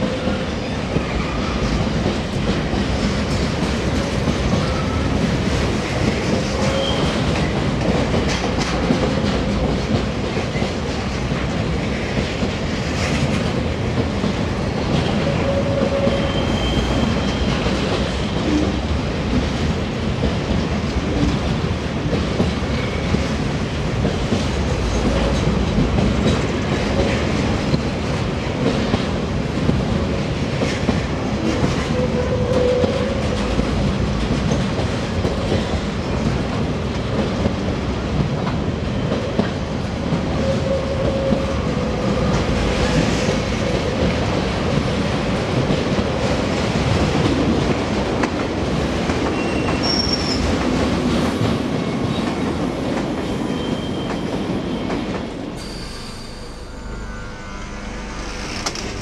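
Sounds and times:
train wheels rumbling on rails: 0.0 - 59.0
wheel squeals: 49.3 - 50.4.

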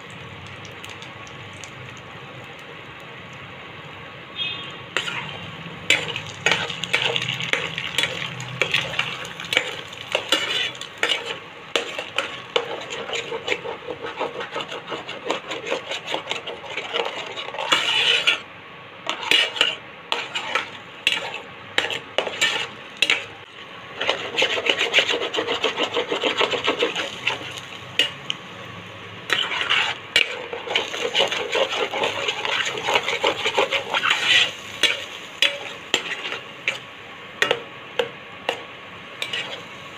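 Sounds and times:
eggs sizzling in a pan: 0.0 - 3.6, 4.9 - 39.9
spatula scraping pan: 5.0 - 28.3, 29.3 - 38.6, 39.2 - 39.8.

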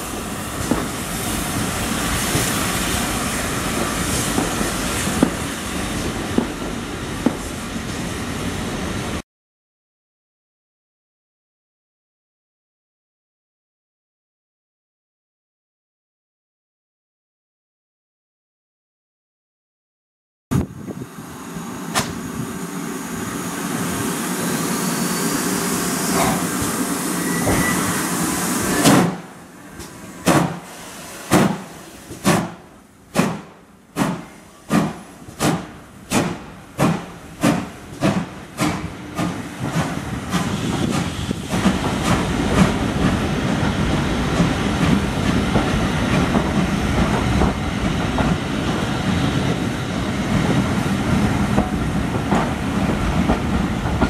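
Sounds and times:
steam hissing: 0.0 - 8.8, 20.9 - 54.0
steam locomotive chuffing: 21.3 - 54.0.

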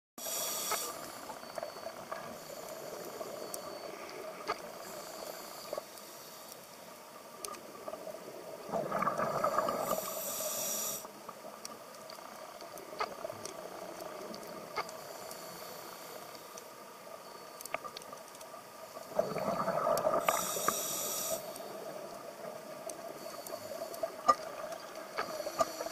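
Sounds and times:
hissing regulator inhale: 0.2 - 1.3, 4.8 - 6.6, 9.4 - 11.2, 15.0 - 16.6, 20.1 - 21.8, 25.2 - 25.9
faint scattered clicks: 0.3 - 25.9
gurgle of exhaled bubbles: 8.6 - 10.0, 19.1 - 20.5.

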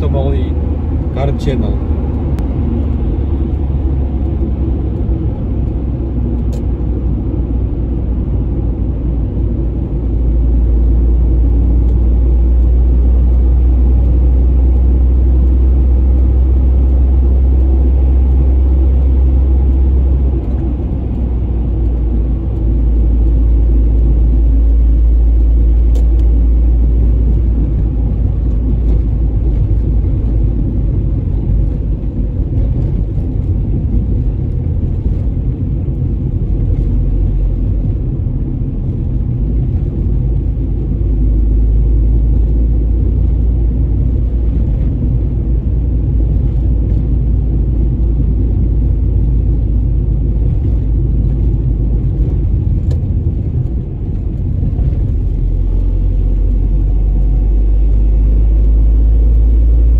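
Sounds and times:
road and tyre noise: 0.0 - 59.9.

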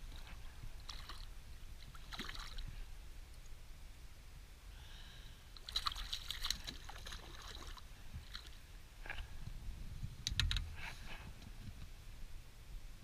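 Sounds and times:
water splashing: 0.0 - 2.8, 5.6 - 8.6
low wind rumble: 7.8 - 13.0.

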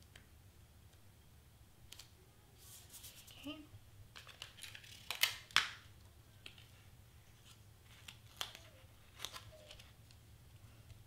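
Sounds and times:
paper crinkles and taps: 4.1 - 5.8.

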